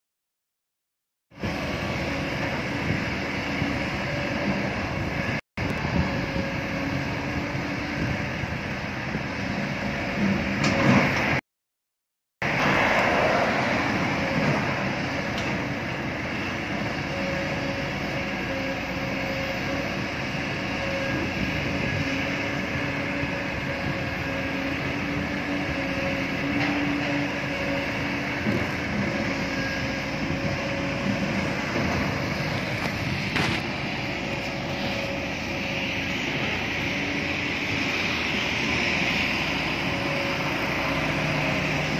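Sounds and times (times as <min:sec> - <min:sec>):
excavator diesel engine: 0:01.3 - 0:11.4, 0:12.4 - 0:41.9
passing road traffic: 0:12.4 - 0:41.9.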